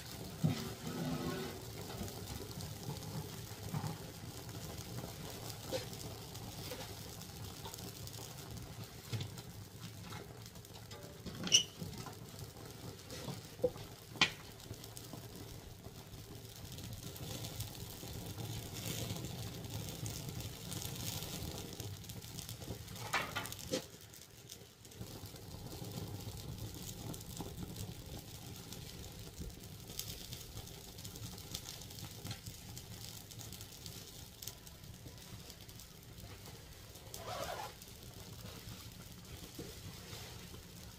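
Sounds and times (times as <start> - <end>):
sharp fire snaps: 0.0 - 40.9
wood fire crackling: 0.0 - 40.9
low rustle: 35.1 - 40.9.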